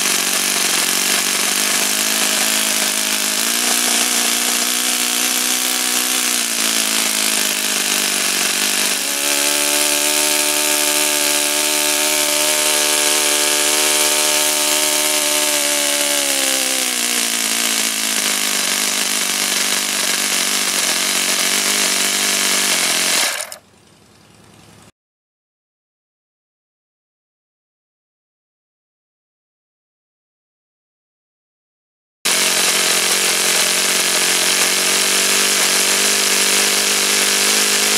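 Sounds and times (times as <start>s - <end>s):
model engine running: 0.0s - 24.9s, 32.3s - 37.9s.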